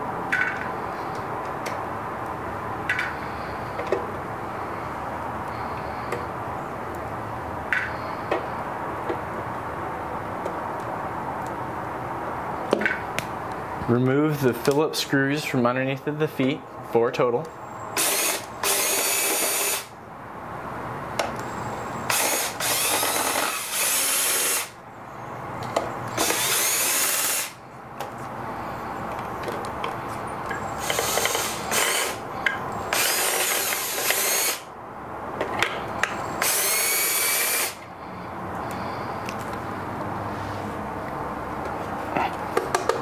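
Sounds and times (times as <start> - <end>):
cordless drill motor whining: 18.0 - 19.9, 21.4 - 24.7, 26.1 - 27.6, 30.7 - 32.2, 32.8 - 34.6, 36.4 - 37.8.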